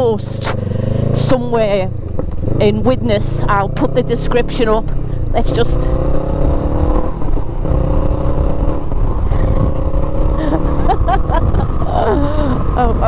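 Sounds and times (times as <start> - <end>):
motorcycle accelerating: 0.0 - 13.0
wind rumbling on microphone: 4.8 - 13.0.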